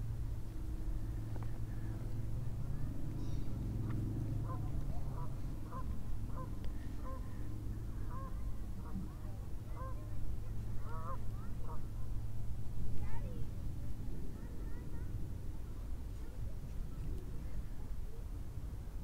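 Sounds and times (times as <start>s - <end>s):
steady low rumble: 0.0s - 19.0s
geese honking: 4.4s - 7.2s.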